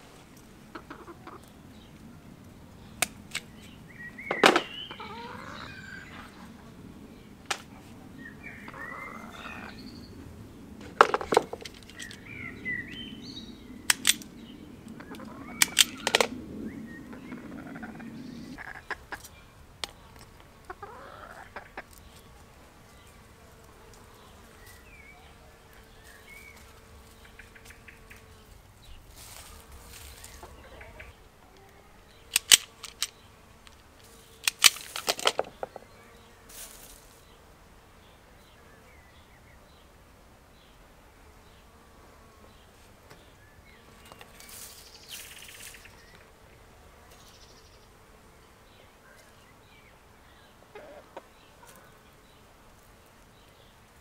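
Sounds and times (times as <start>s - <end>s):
low background hum: 0.0s - 54.0s
bird calls: 0.4s - 37.1s, 48.7s - 52.1s
hand tools clicking on wire: 3.0s - 3.7s, 11.0s - 12.2s, 13.9s - 14.3s, 15.6s - 16.3s, 32.3s - 35.5s.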